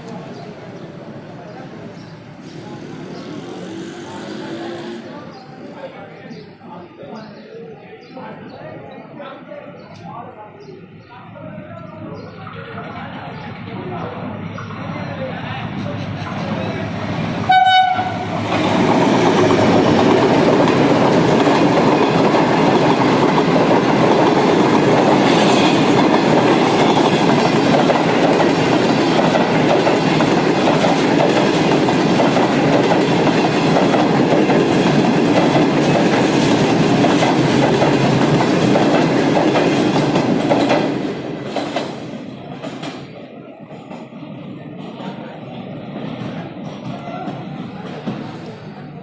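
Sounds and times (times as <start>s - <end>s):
train rumbling past: 0.0s - 6.0s, 10.3s - 49.0s
train horn: 17.5s - 18.3s.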